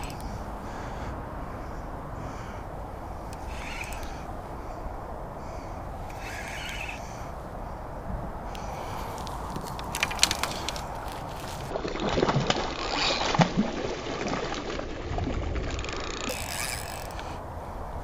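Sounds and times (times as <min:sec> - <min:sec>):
sharp clicks: 0:00.0 - 0:00.4, 0:03.3 - 0:04.2, 0:06.1 - 0:07.0
fish splashing in water: 0:11.6 - 0:16.4.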